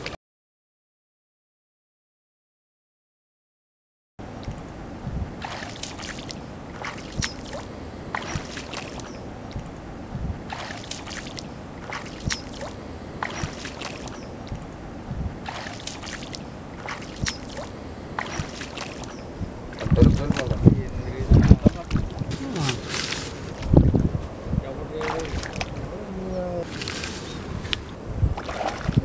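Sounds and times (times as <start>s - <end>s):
steady background hiss: 4.2s - 29.0s
bare feet wading in water: 5.4s - 9.7s, 10.4s - 14.7s, 15.4s - 20.6s, 21.4s - 23.8s, 25.0s - 25.9s, 26.6s - 29.0s.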